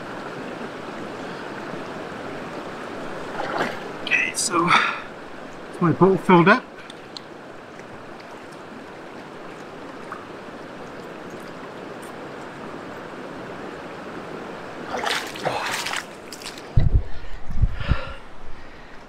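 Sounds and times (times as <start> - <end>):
stony river flowing: 0.0 - 16.8
splashing footsteps in water: 3.3 - 3.9, 14.9 - 16.7.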